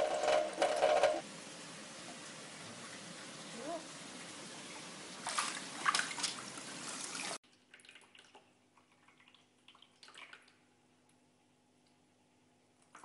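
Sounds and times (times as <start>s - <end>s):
water splashing around swimming cat: 5.2s - 10.6s.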